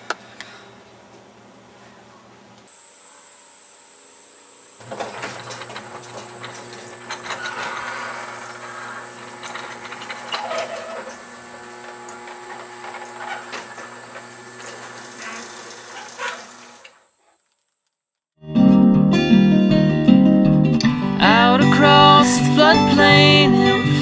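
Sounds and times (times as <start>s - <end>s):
garage door rumbling and rattling: 4.8s - 16.8s.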